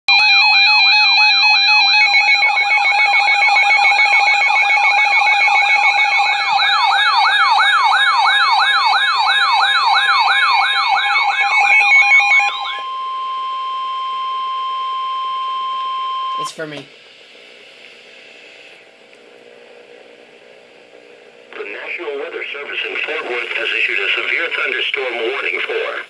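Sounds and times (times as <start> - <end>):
rising siren whoop: 0.1 - 16.4
steady alert tone: 0.3 - 16.8.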